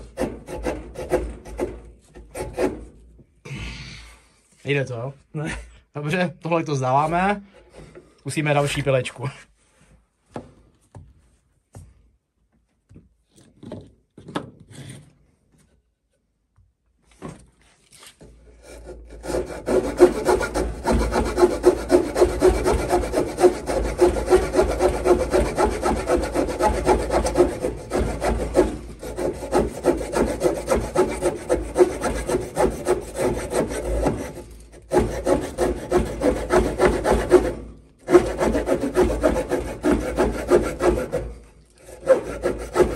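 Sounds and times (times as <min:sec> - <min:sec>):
small saw cutting wooden rod: 0:00.0 - 0:03.0, 0:18.5 - 0:42.9.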